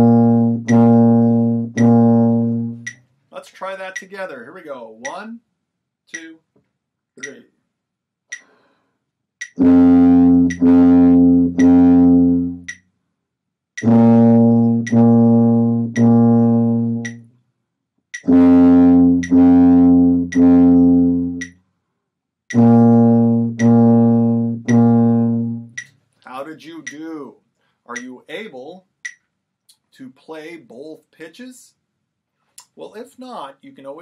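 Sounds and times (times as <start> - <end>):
tuba playing held notes: 0.0 - 3.0, 9.6 - 12.7, 13.8 - 17.2, 18.2 - 21.5, 22.5 - 25.8
metronome ticking: 0.0 - 5.4, 6.1 - 6.4, 7.2 - 7.5, 8.3 - 8.6, 9.4 - 12.9, 13.8 - 17.3, 18.1 - 21.6, 22.5 - 27.3, 27.9 - 29.8.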